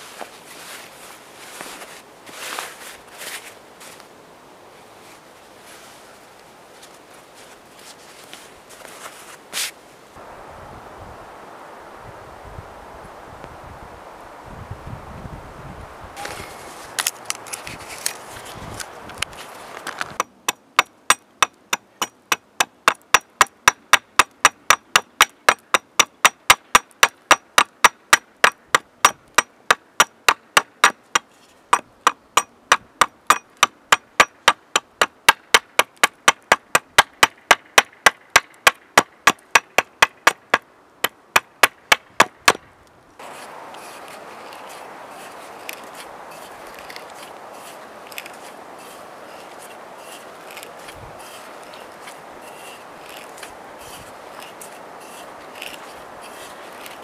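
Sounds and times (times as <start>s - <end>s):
axe chopping wood: 20.2s - 42.6s.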